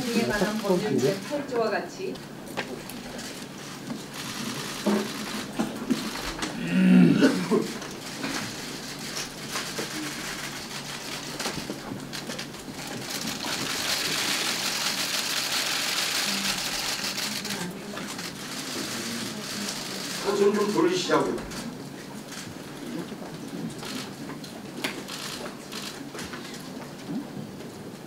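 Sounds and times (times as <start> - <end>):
camera shutters clicking: 4.1 - 6.6, 24.8 - 26.6.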